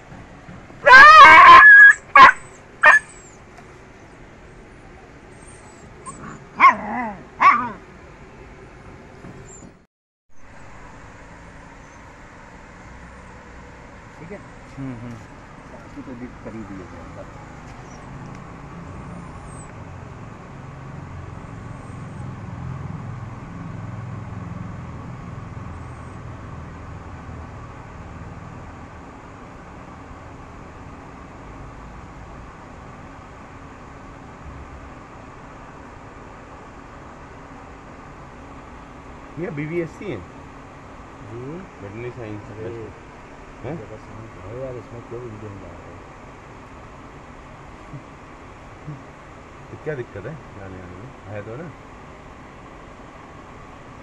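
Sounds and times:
vehicle engine rumble: 0:00.0 - 0:54.0
dog yelping and crying: 0:00.8 - 0:04.2, 0:04.9 - 0:07.9, 0:09.4 - 0:09.8, 0:17.1 - 0:18.2, 0:19.1 - 0:19.7.

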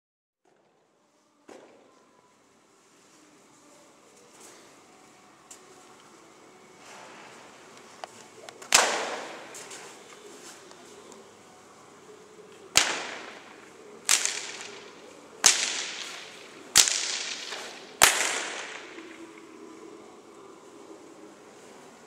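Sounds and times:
whip cracking with echo: 0:08.4 - 0:10.6, 0:12.7 - 0:19.7.

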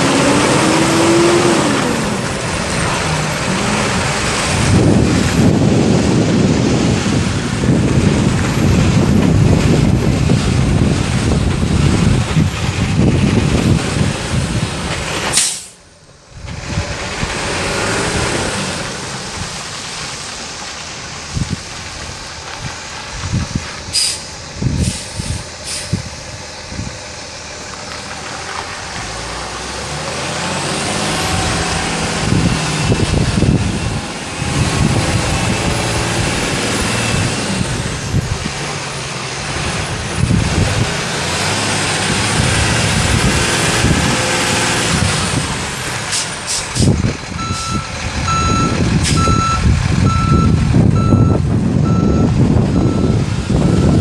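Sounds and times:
diesel truck engine revving: 0:00.0 - 0:54.0
reversing alarm beeping: 0:47.4 - 0:54.0.

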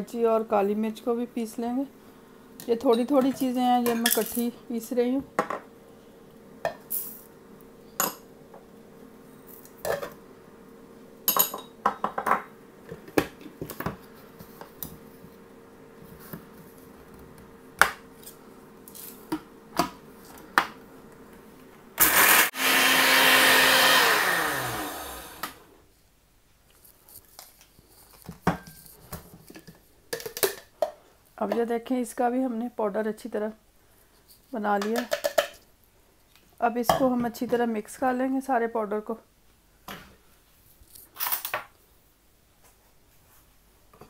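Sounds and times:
blender grinding spices: 0:22.0 - 0:25.7.

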